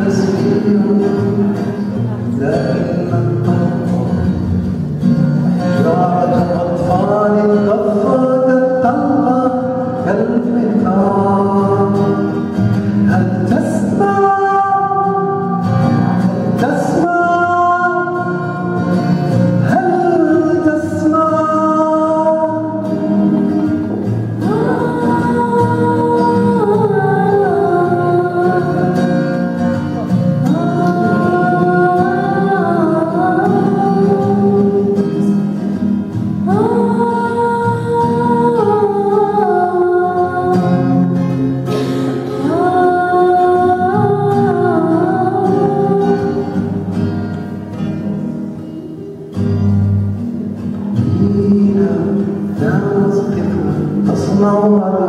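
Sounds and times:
acoustic guitar: 0.0s - 55.0s
girl singing: 13.8s - 15.9s, 17.3s - 19.0s, 22.3s - 29.5s, 30.4s - 35.5s, 36.4s - 41.3s, 42.0s - 46.9s.

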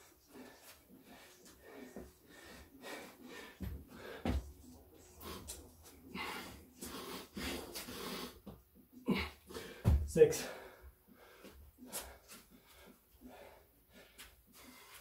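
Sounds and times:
man breathing heavily: 0.0s - 15.0s
hands and feet thudding on concrete: 9.8s - 10.2s.

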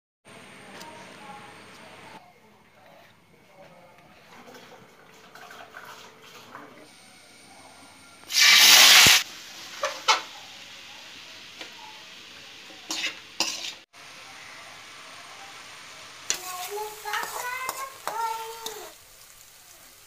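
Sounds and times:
frying hiss: 4.2s - 20.0s
vegetables sizzling in hot oil: 6.9s - 20.0s
spatula scraping pan: 12.8s - 13.9s, 16.3s - 18.9s.

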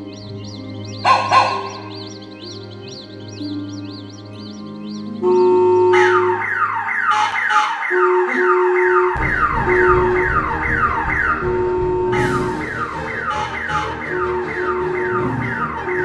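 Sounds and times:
held musical tones: 0.0s - 16.0s
police siren wailing: 5.2s - 16.0s
low rumble: 9.2s - 13.5s.

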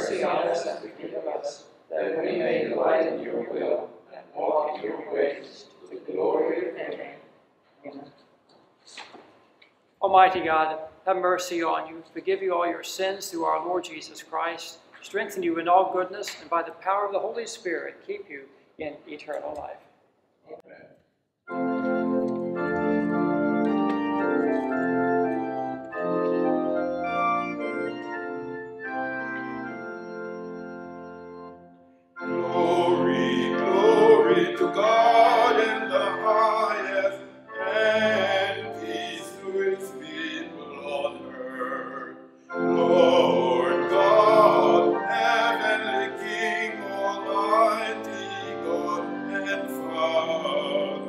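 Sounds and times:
organ playing chords: 0.0s - 0.9s, 21.5s - 51.0s.

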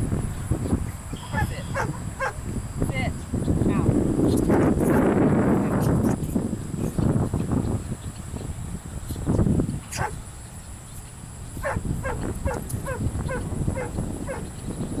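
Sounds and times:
wind rumbling on microphone: 0.0s - 15.0s
dog whining in high yelps: 1.3s - 2.3s, 11.6s - 14.4s.

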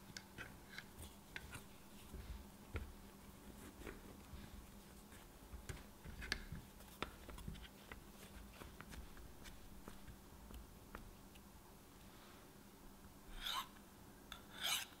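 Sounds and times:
hands smoothing dough rustling: 0.4s - 11.3s.

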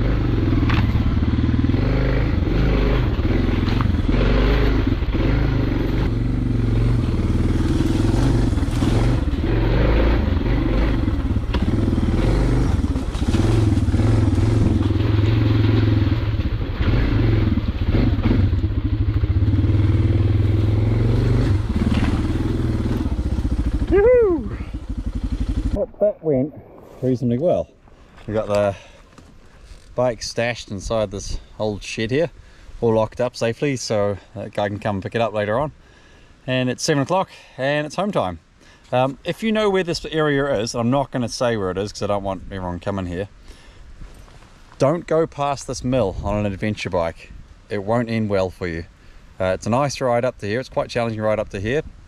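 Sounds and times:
motorcycle engine under load: 0.0s - 25.8s.

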